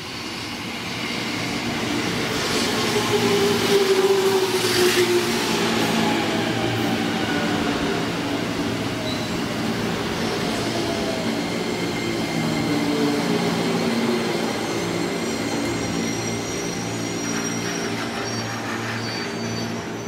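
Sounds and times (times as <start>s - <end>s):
high brake squeal: 10.2s - 20.0s.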